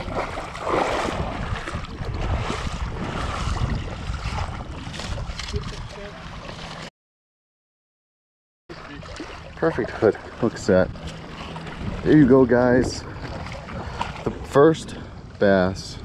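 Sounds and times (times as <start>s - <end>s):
low wind rumble on microphone: 0.0s - 6.9s, 10.5s - 16.0s
water splashing and sloshing: 0.0s - 6.9s, 8.7s - 16.0s.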